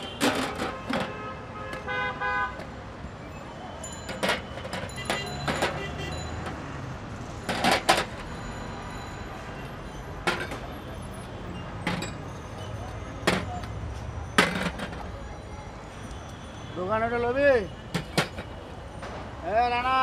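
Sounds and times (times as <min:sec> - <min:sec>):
street traffic hum: 0:00.0 - 0:20.0.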